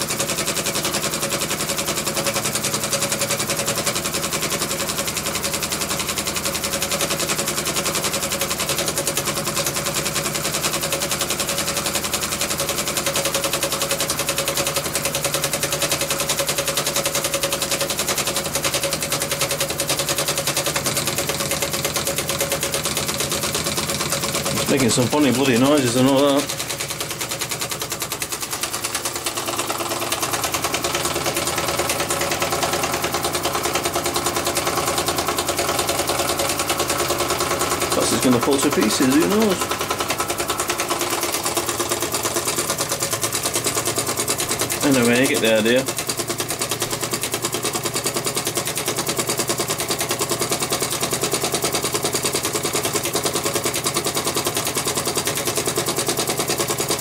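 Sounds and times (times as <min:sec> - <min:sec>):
toy steam engine chuffing: 0:00.0 - 0:57.0
toy steam engine clattering: 0:23.1 - 0:32.9, 0:35.8 - 0:49.1.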